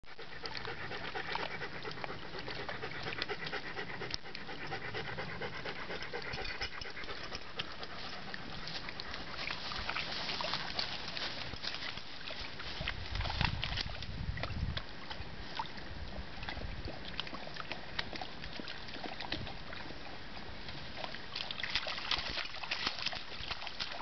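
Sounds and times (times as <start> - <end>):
dogs panting: 0.1 - 11.8
paws splashing in water: 0.1 - 24.0.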